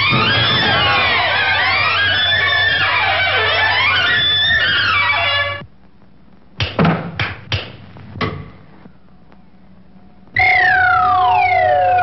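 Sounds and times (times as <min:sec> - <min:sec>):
sharp knocks: 0:06.6 - 0:08.6
whistle-like tone sliding downward: 0:10.4 - 0:12.0.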